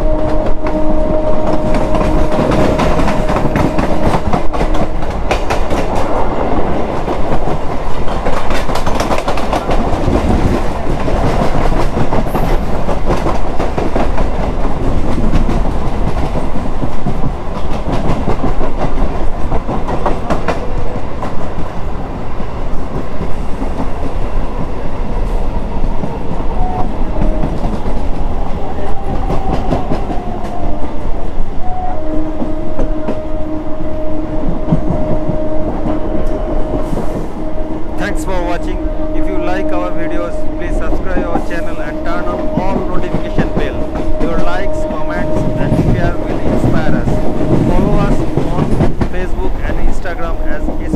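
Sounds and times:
train rumble: 0:00.0 - 0:50.9
wheels clattering over rail joints: 0:06.8 - 0:21.3.

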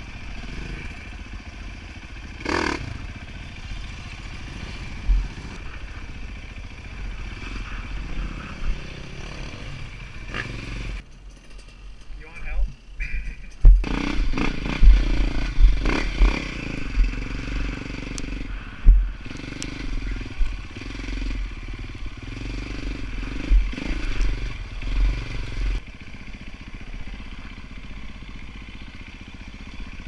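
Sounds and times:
dirt bike engine revving: 0:00.0 - 0:11.0, 0:13.4 - 0:25.8.

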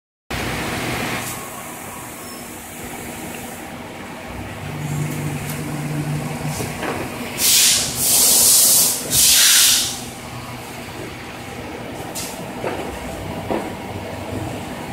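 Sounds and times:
machine hum: 0:00.3 - 0:14.9
bursts of hiss: 0:07.4 - 0:10.0.

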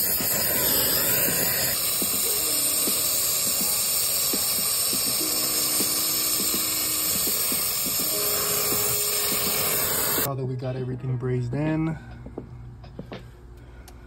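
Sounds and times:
torch flame hissing: 0:00.0 - 0:10.3.

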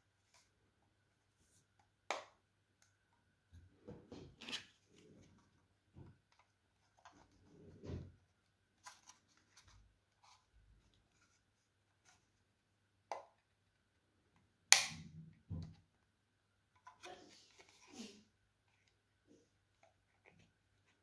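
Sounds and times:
loud plastic snap: 0:14.7 - 0:15.1.

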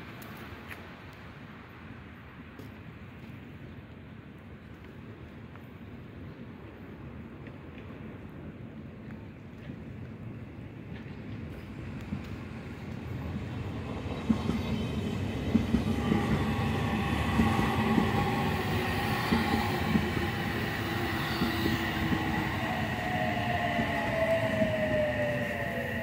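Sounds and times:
electric train rumble: 0:10.7 - 0:26.0
wheels clacking over rail joints: 0:10.9 - 0:25.3
train motor whine: 0:15.0 - 0:26.0.

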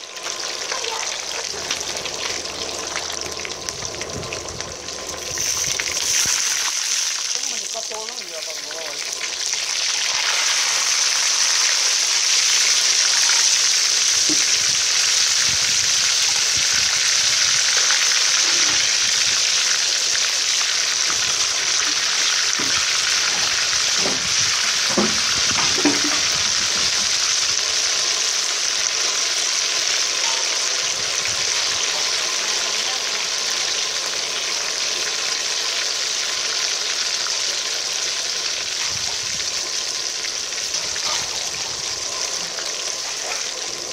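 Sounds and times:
oil sizzling in wok: 0:00.0 - 0:43.9.

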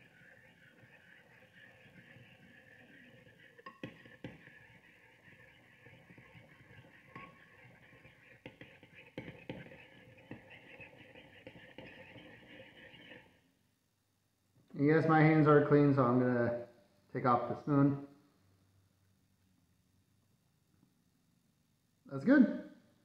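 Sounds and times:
spoon clinking against bowl: 0:03.6 - 0:04.2
faint steady hiss: 0:13.2 - 0:23.0.

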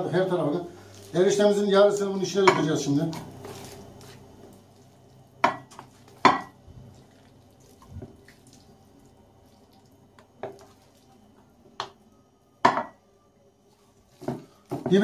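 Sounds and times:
spoon knocking against pan: 0:05.4 - 0:06.6, 0:12.6 - 0:13.0
wet slops of noodles: 0:06.8 - 0:11.2.

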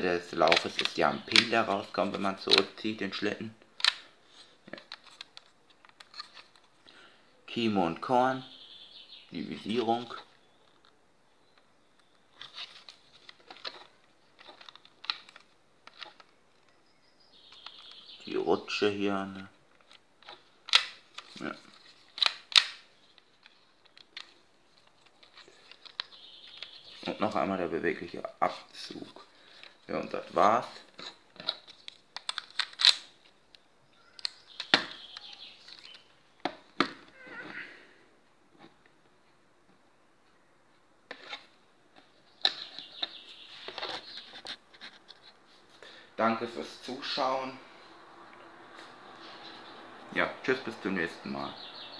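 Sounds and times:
plastic toy bricks clicking: 0:31.0 - 0:33.0.

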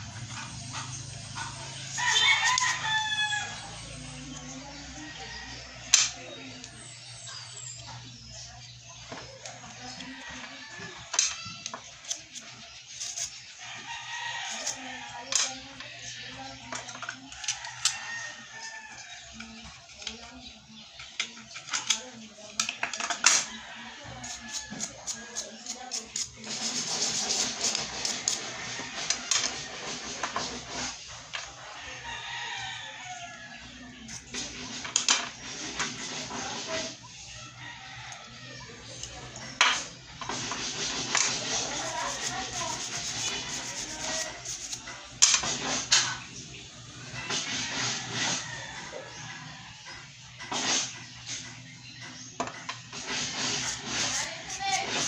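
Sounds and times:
rooster crowing and clucking: 0:00.0 - 0:06.2, 0:09.2 - 0:11.6, 0:13.0 - 0:19.7, 0:23.0 - 0:34.5, 0:36.4 - 0:45.4, 0:47.0 - 0:50.1, 0:52.8 - 0:55.0.

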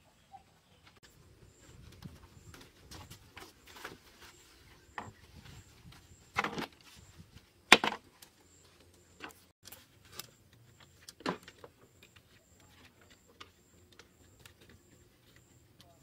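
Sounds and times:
bamboo pieces knocking: 0:07.7 - 0:08.1.

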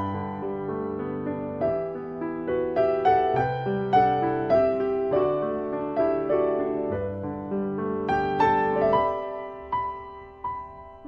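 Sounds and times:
gentle piano melody: 0:00.0 - 0:11.0.

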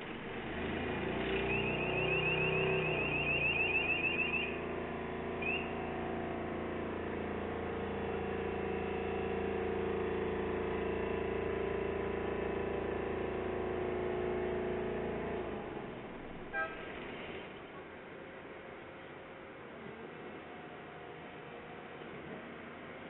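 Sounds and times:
diesel engine drone: 0:00.0 - 0:23.0
high chirping warning alarm: 0:01.4 - 0:04.6, 0:05.4 - 0:05.8.

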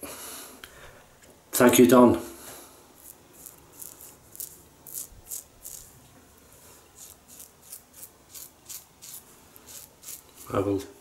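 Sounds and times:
razor scratching stubble: 0:03.0 - 0:06.0, 0:07.0 - 0:10.8.

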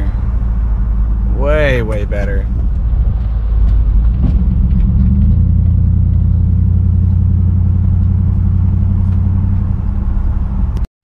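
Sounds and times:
truck engine humming while driving: 0:00.0 - 0:10.9.

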